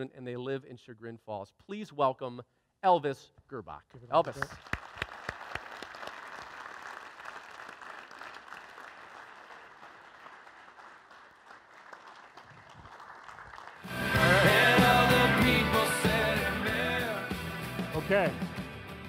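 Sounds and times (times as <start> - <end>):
audience applauding: 4.3 - 15.3.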